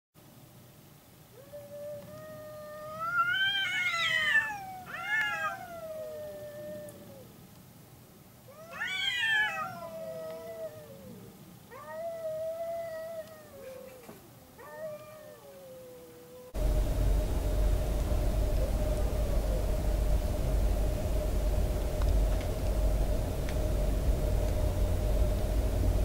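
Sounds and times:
cats yowling: 0:01.3 - 0:07.4, 0:08.5 - 0:16.6.

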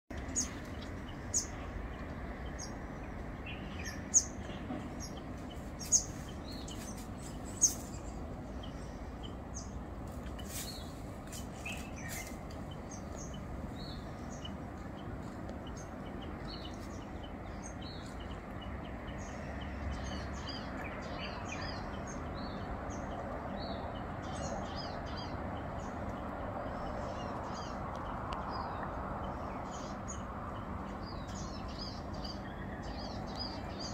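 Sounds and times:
small birds chirping: 0:00.1 - 0:33.9
steady background hum: 0:00.1 - 0:33.9.

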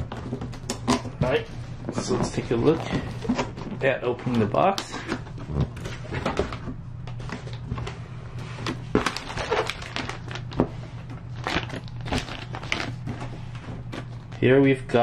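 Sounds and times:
plastic bag rustling: 0:05.8 - 0:14.6.

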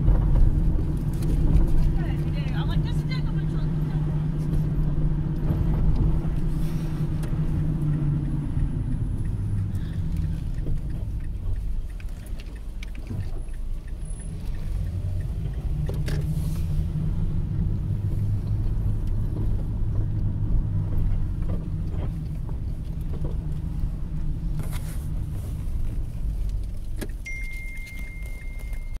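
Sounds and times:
car engine and road noise: 0:00.0 - 0:29.0
thin high tone: 0:27.3 - 0:29.0.

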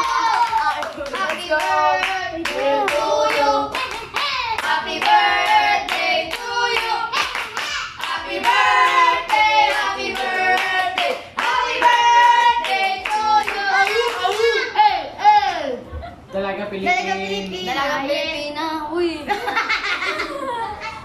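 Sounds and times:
hands clapping to a beat: 0:05.9 - 0:08.6.

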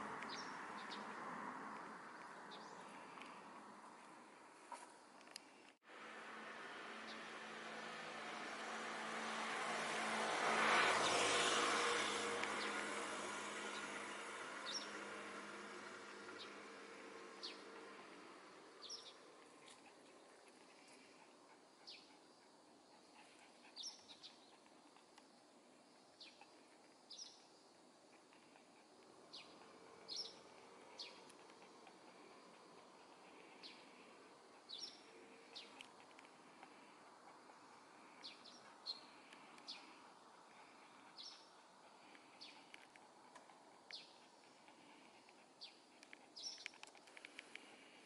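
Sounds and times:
vehicle noise: 0:00.0 - 0:48.0
sparrows chirping: 0:00.3 - 0:01.1, 0:10.7 - 0:15.2, 0:16.3 - 0:21.2, 0:21.8 - 0:22.2, 0:23.2 - 0:25.1, 0:26.2 - 0:27.5, 0:28.1 - 0:42.8, 0:43.9 - 0:48.0.

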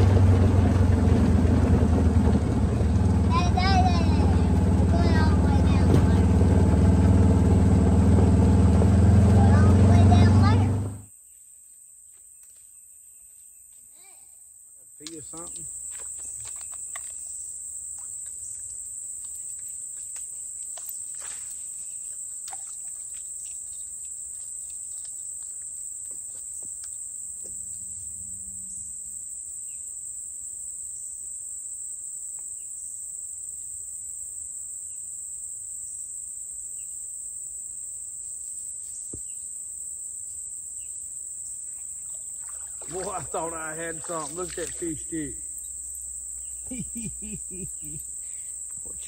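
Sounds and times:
high-pitched insect chorus: 0:11.1 - 0:49.0.

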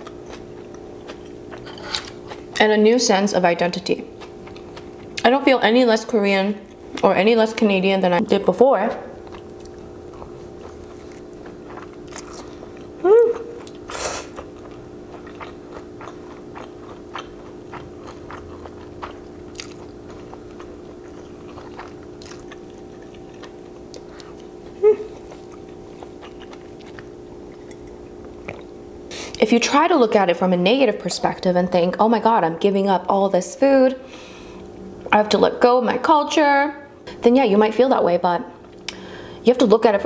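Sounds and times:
noodles slurped and chewed: 0:13.6 - 0:27.1.

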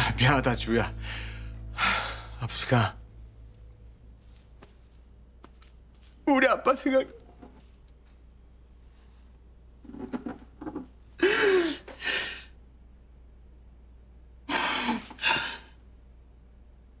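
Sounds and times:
man sobbing and wailing: 0:11.2 - 0:12.4.

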